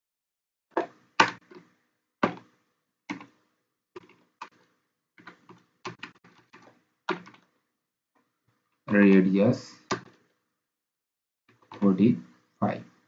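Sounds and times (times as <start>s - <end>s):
computer keyboard keystrokes: 2.2s - 2.5s, 3.1s - 3.4s, 5.2s - 7.4s, 9.8s - 10.2s.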